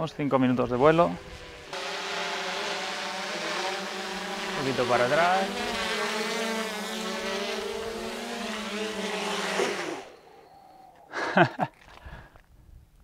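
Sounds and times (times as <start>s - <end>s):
quadcopter propellers buzzing: 0.0s - 11.6s.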